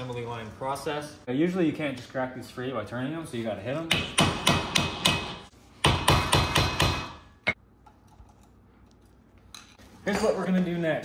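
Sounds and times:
hammer striking impact driver: 3.9s - 7.4s.

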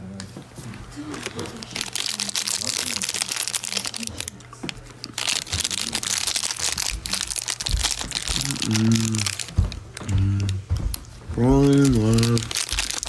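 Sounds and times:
plastic wrapper crinkling: 0.9s - 13.0s
person humming: 8.3s - 9.4s, 10.0s - 10.7s.

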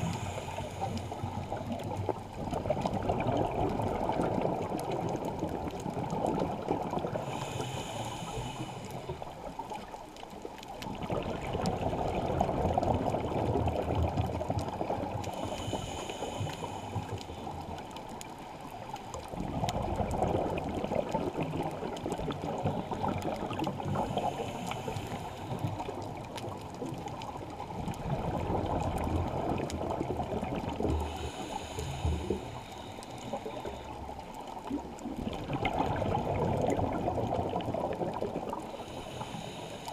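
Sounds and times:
regulator inhale hiss: 0.0s - 2.0s, 7.1s - 9.8s, 14.9s - 17.9s, 22.5s - 26.1s, 30.8s - 34.3s, 38.6s - 39.9s
exhaust bubbles underwater: 0.0s - 39.9s.

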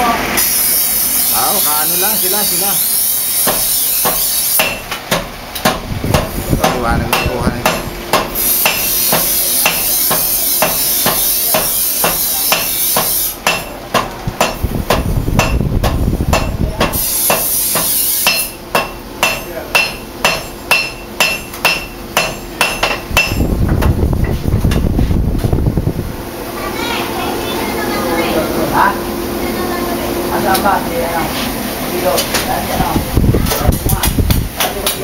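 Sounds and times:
grinding wheel hiss: 0.4s - 4.9s, 6.2s - 13.7s, 16.9s - 18.6s
hammer on anvil: 3.4s - 23.5s.

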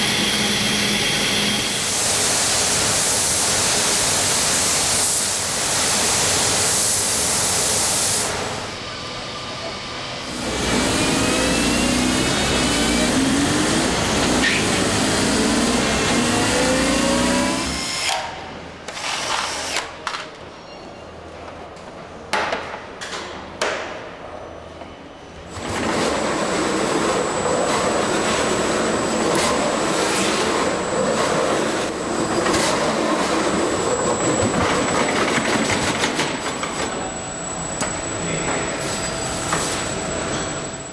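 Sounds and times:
stretch-wrapping machine running: 25.5s - 36.8s.

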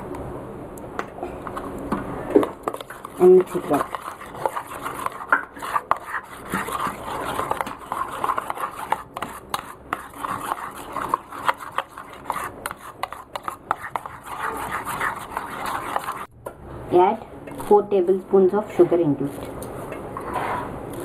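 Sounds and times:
spoon scraping and clinking bowl: 2.4s - 16.3s.

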